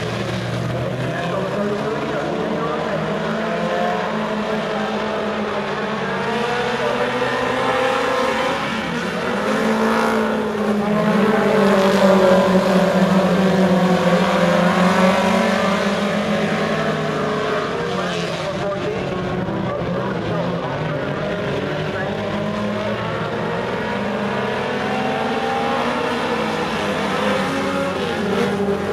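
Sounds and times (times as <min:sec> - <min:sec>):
race car engines: 0:00.0 - 0:28.9.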